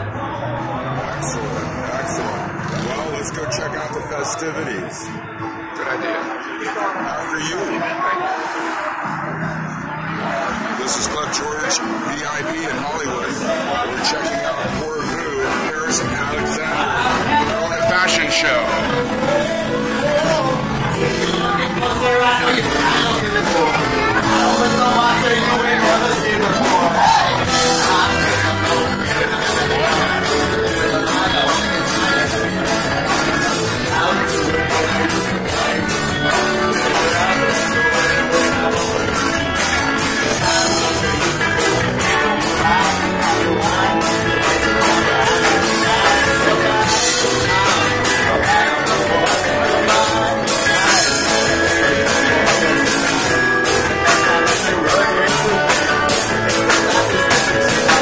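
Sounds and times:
acoustic guitar: 0:00.0 - 0:58.0
person singing: 0:05.9 - 0:58.0
drum kit beat with cymbals: 0:12.3 - 0:58.0.

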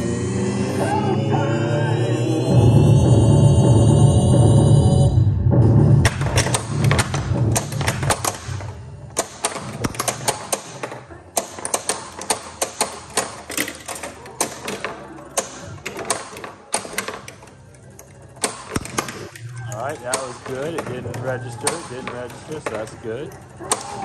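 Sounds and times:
pinball music and sound effects: 0:05.1 - 0:24.0
pinball clicks and knocks: 0:06.0 - 0:24.0.

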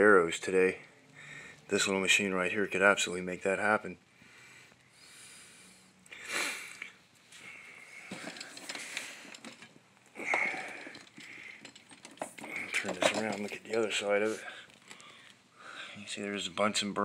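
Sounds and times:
person breathing or sniffing: 0:04.3 - 0:09.4.

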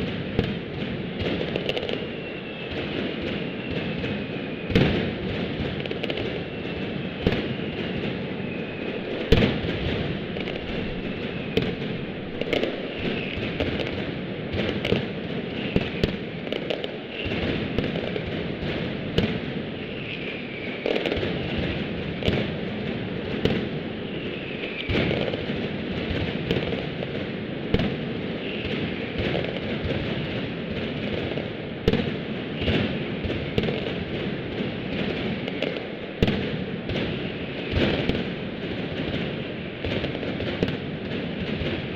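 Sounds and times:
firecrackers crackling and banging: 0:00.0 - 0:41.9.

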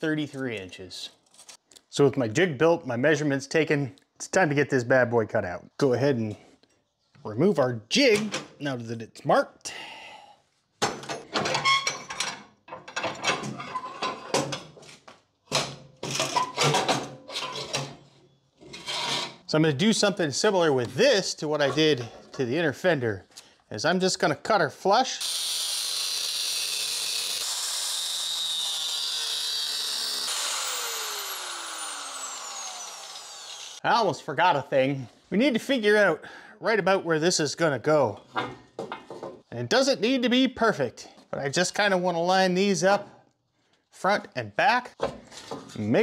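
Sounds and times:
angle grinder cutting metal: 0:25.2 - 0:33.8
grinder winding down whine: 0:25.2 - 0:33.8.

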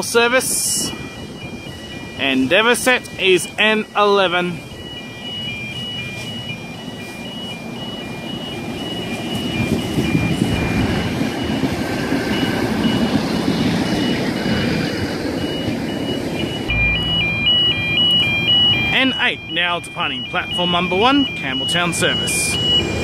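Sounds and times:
diesel railcar passing: 0:00.0 - 0:19.0
low engine hum: 0:12.3 - 0:18.5
two-tone electronic beeping: 0:15.4 - 0:23.0.

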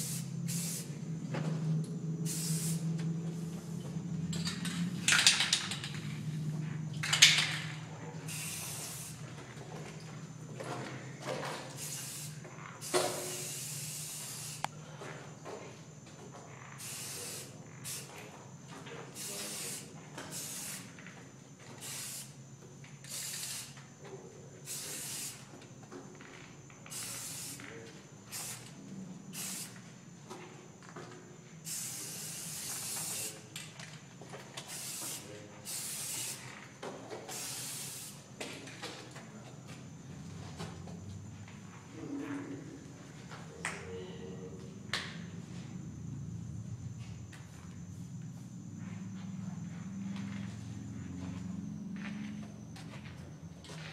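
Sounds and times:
spray paint can hissing: 0:00.0 - 0:01.0, 0:02.2 - 0:03.6, 0:08.3 - 0:09.3, 0:11.7 - 0:14.7, 0:16.8 - 0:18.1, 0:19.2 - 0:21.0, 0:21.8 - 0:22.4, 0:23.0 - 0:23.8, 0:24.7 - 0:25.5, 0:26.8 - 0:27.6, 0:28.3 - 0:29.8, 0:31.7 - 0:33.4, 0:34.6 - 0:36.4, 0:37.3 - 0:38.3.

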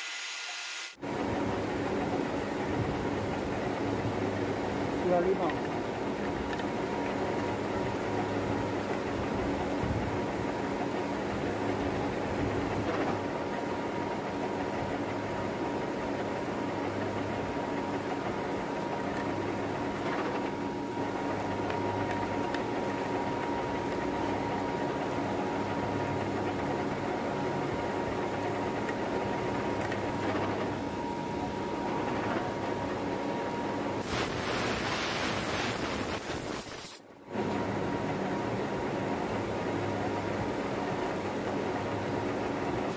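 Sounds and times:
loud hiss: 0:00.0 - 0:01.0, 0:34.0 - 0:37.0.

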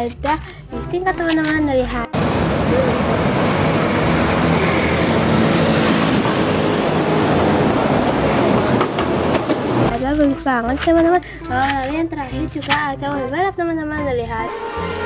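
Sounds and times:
bus driving past: 0:02.1 - 0:09.9.

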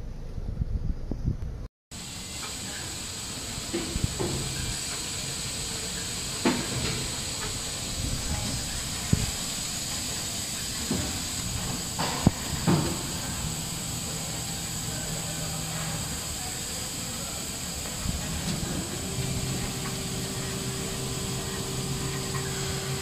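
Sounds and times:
machine hissing: 0:01.9 - 0:23.0.

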